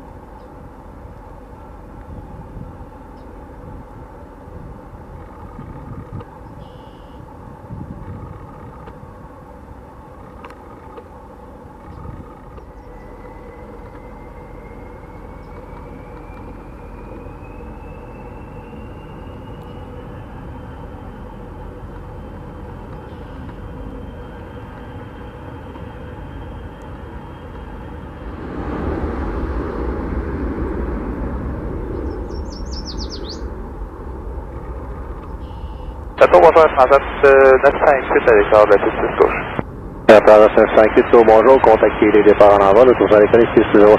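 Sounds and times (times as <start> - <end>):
jet engines rumbling and whining: 0.0 - 43.9
bird chirping: 31.9 - 33.6, 35.2 - 36.0.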